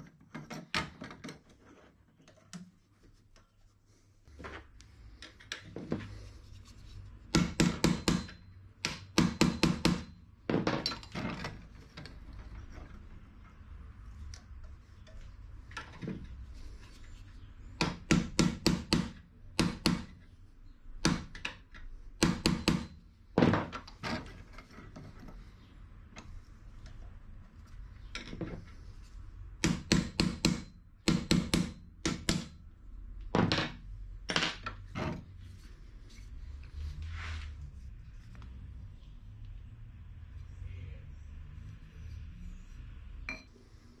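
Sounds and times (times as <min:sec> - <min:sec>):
sharp metal knocks: 0:07.4 - 0:11.1.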